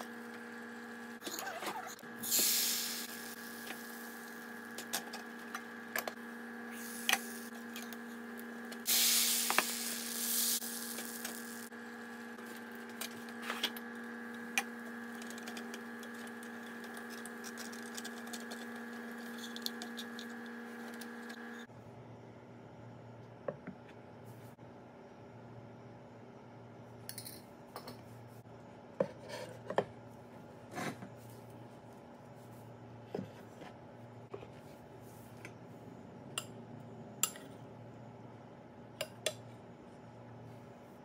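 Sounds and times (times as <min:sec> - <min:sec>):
electrical hum: 0:00.0 - 0:41.0.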